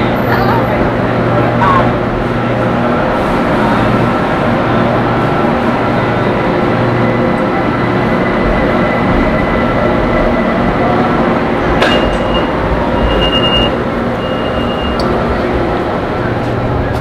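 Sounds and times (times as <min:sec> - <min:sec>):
metro train rumbling: 0:00.0 - 0:17.0
high tone: 0:11.8 - 0:15.1.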